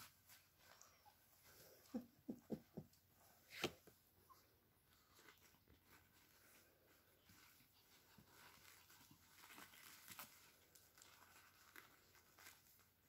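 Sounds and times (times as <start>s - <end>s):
paper crinkling: 4.9s - 13.0s
small crackles: 4.9s - 13.0s.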